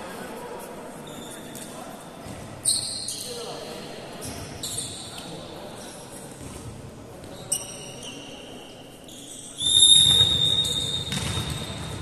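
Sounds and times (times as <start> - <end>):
referee's whistle blast: 9.6 - 11.6.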